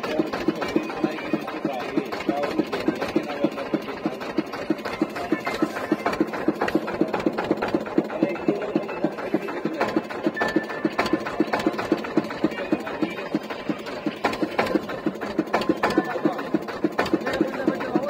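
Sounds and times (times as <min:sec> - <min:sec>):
boat engine thudding: 0:00.0 - 0:18.0.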